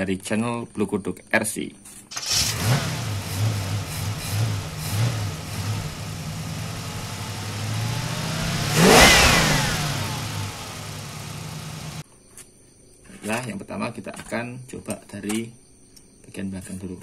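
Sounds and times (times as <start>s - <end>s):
engine revving: 2.2s - 12.0s.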